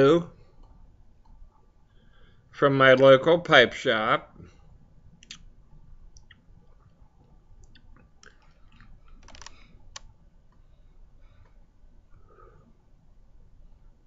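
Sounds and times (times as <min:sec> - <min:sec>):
mouth clicks and lip smacks: 0:05.2 - 0:05.5, 0:06.1 - 0:07.0, 0:07.6 - 0:09.2.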